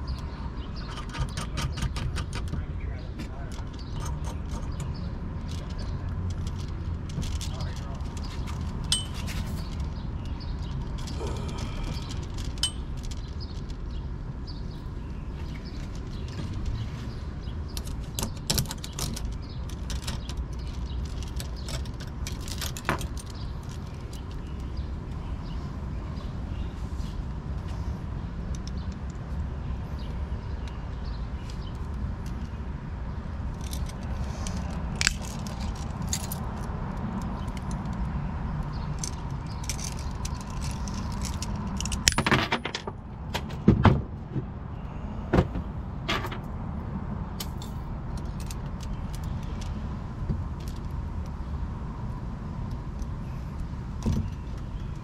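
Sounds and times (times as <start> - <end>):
steel chain clinking: 3.7 - 13.7, 38.9 - 42.9
metallic clicks: 33.5 - 42.8.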